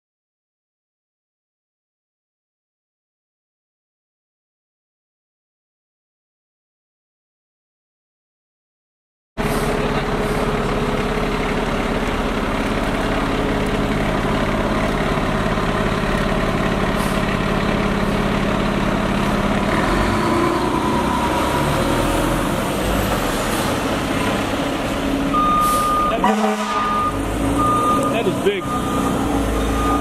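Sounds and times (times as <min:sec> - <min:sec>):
fire truck diesel engine: 0:09.4 - 0:30.0.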